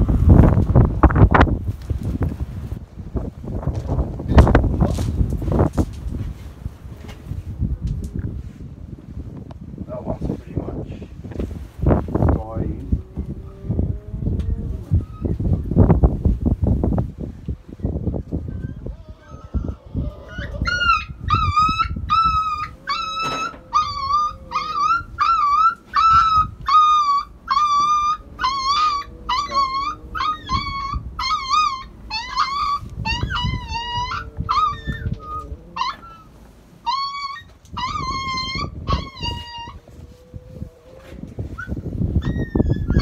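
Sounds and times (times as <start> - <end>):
puppy yelping: 18.5 - 40.7, 41.4 - 43.0.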